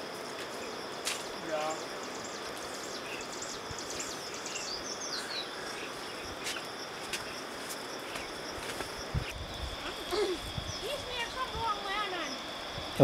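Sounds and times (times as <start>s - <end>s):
high-pitched insect trill: 0.0s - 13.0s
bird chirps: 1.7s - 6.7s.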